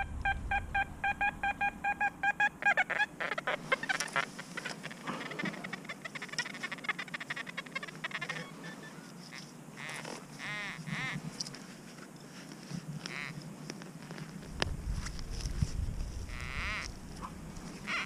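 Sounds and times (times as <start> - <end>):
metal detector beeping: 0.0 - 2.8.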